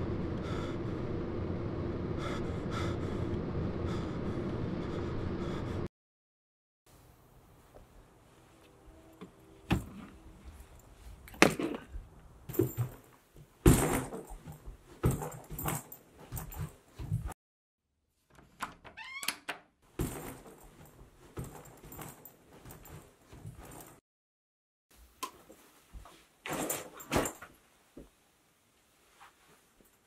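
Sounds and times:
heavy thuds and knocks: 0:12.5 - 0:17.4.

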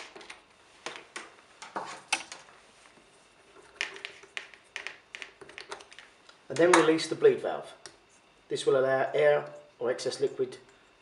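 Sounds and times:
plastic nuts clicking and scraping: 0:03.6 - 0:06.8.

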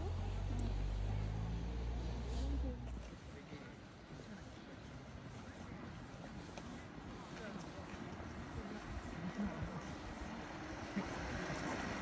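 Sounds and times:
car engine and tyre rumble: 0:00.0 - 0:12.0
faint outdoor background noise: 0:00.0 - 0:12.0.

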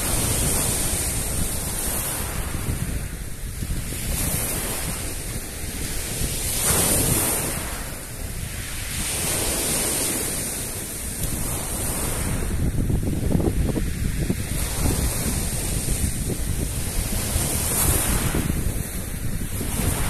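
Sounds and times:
sea waves breaking: 0:00.0 - 0:20.0
wind buffeting microphone: 0:00.0 - 0:20.0.

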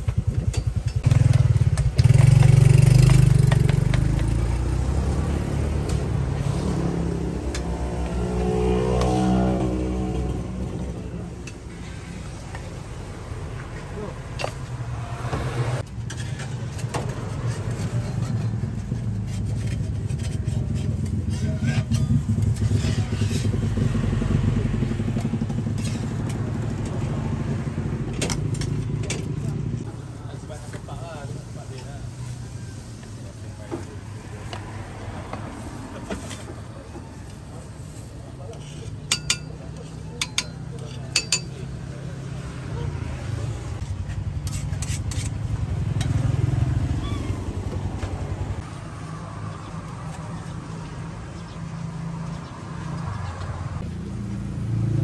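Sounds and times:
metal spatula scraping a pan: 0:15.9 - 0:23.8, 0:38.5 - 0:41.6, 0:44.1 - 0:46.2.

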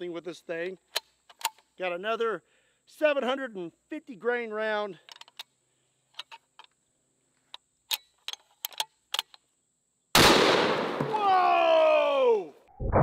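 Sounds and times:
rifle bolt metallic clicks: 0:07.9 - 0:09.4
loud rifle gunshot: 0:10.2 - 0:11.3.

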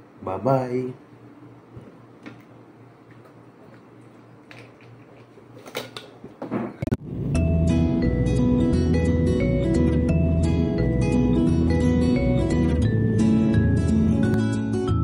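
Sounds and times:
low steady room hum: 0:00.0 - 0:14.1
music: 0:07.0 - 0:15.0.

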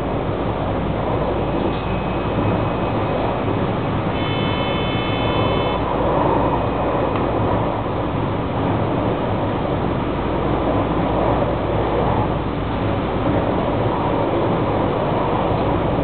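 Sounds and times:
train wheels rumbling on rail: 0:00.0 - 0:16.0
steady high tone: 0:04.1 - 0:05.9.

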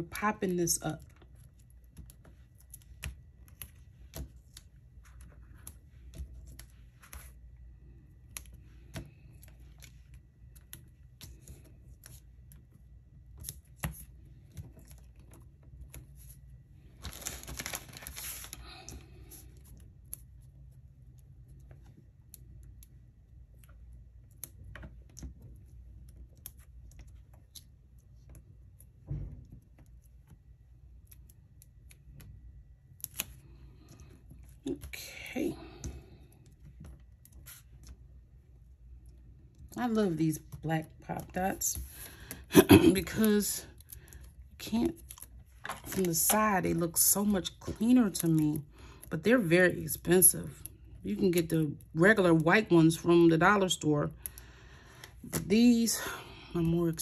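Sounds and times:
paper rustling: 0:17.0 - 0:19.4.

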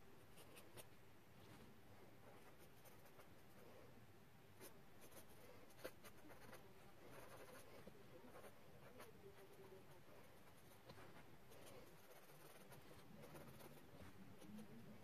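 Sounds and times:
pen scratching on paper: 0:02.3 - 0:03.6, 0:04.6 - 0:15.0.

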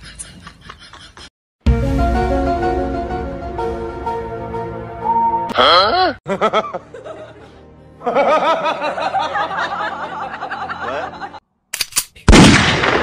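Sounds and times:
background music: 0:01.6 - 0:11.4.

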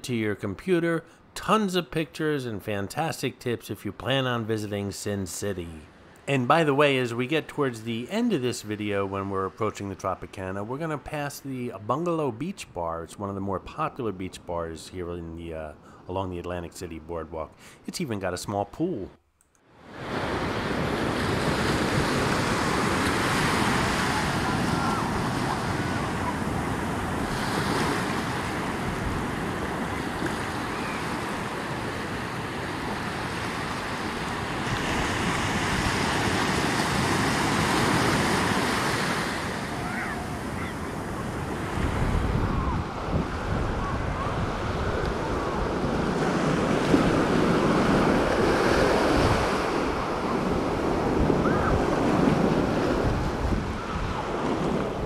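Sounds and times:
ocean surf breaking on beach: 0:19.7 - 0:55.0
wind buffeting microphone: 0:41.8 - 0:46.0.

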